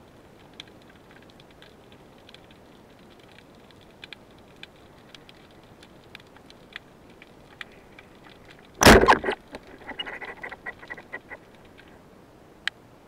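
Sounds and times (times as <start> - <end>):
faint underwater clicks: 0.2 - 12.0
speargun firing underwater: 8.8 - 9.4.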